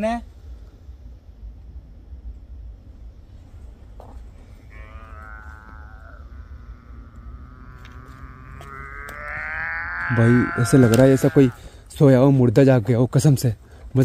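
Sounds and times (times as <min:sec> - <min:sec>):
long moaning call: 0:04.4 - 0:11.8.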